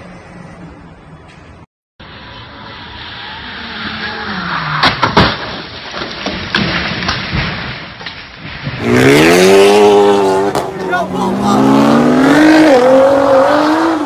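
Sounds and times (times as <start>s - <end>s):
car engine: 0.0s - 6.6s, 8.7s - 14.0s
car crash bangs: 4.6s - 9.4s.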